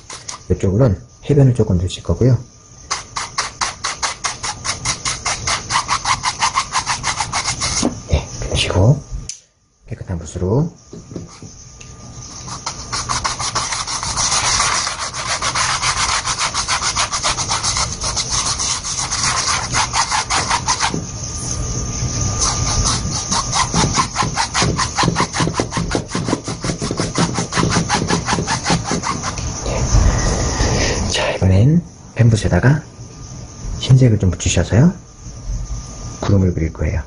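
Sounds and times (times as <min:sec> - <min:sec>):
bristle brush scrubbing canvas: 0:02.9 - 0:08.0, 0:12.2 - 0:21.0, 0:22.3 - 0:29.5.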